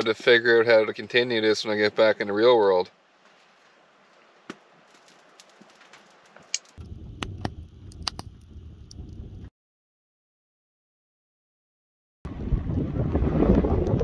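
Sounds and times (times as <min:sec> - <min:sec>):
flames rushing: 0:02.8 - 0:09.5, 0:12.3 - 0:14.0
wood fire crackling and popping: 0:03.0 - 0:09.4.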